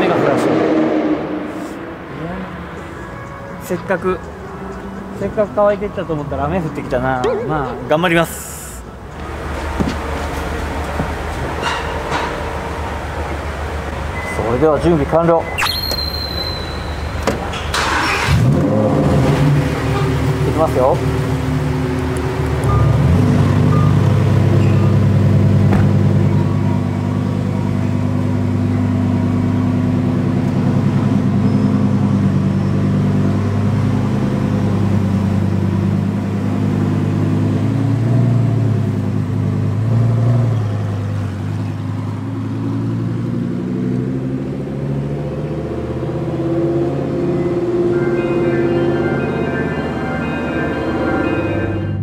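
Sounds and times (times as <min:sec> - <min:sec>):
sports car engine at low revs: 0:18.3 - 0:47.8.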